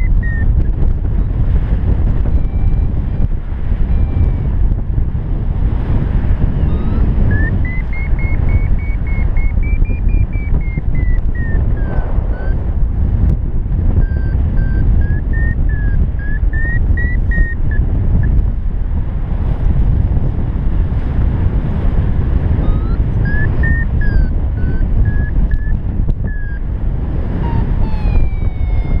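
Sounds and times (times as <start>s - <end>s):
variometer beeping: 0.0s - 4.9s, 6.4s - 18.5s, 22.4s - 29.0s
wind rush on microphone: 0.0s - 29.0s
smooth falling tone: 6.7s - 12.6s, 22.6s - 25.7s, 27.4s - 29.0s.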